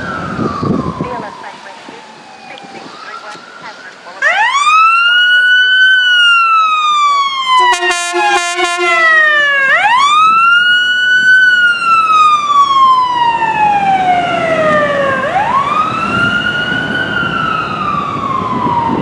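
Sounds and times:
ambulance siren wailing: 0:00.0 - 0:19.0
truck engine and tyre noise: 0:00.0 - 0:19.0
horn blast: 0:07.6 - 0:09.5.

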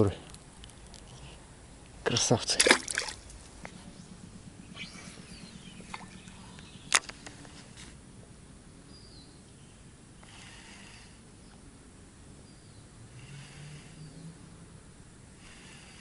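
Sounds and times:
faint birdsong: 0:00.0 - 0:16.0
bird chirp: 0:03.8 - 0:07.2, 0:08.9 - 0:09.8, 0:12.4 - 0:12.9, 0:13.9 - 0:14.4.

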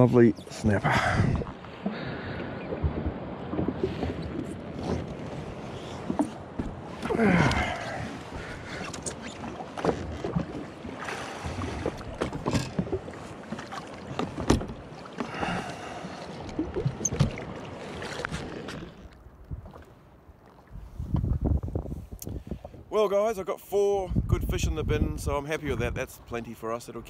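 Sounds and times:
water splashing: 0:00.0 - 0:20.8.

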